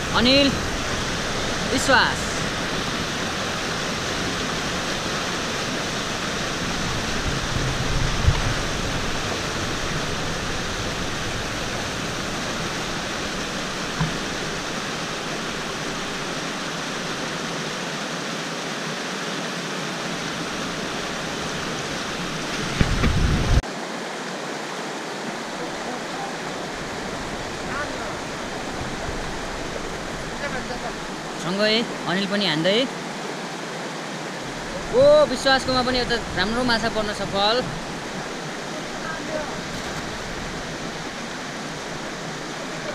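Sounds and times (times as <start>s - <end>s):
low thumps: 0.0s - 17.5s
river rushing over rocks: 0.0s - 42.9s.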